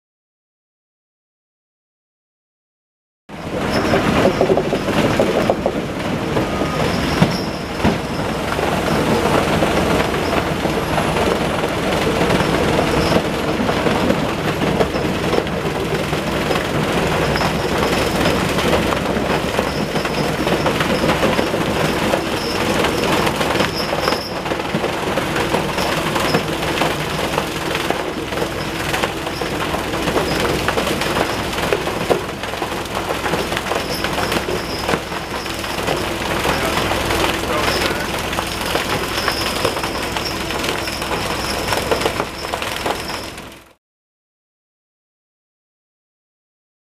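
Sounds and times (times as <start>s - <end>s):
rock crusher mechanical din: 3.4s - 43.8s
stone clattering through crusher: 12.3s - 43.4s.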